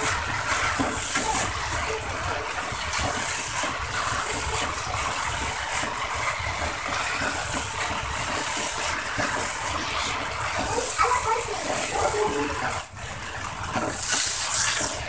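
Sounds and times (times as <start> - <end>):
spatula scraping a pot: 0.0 - 15.0.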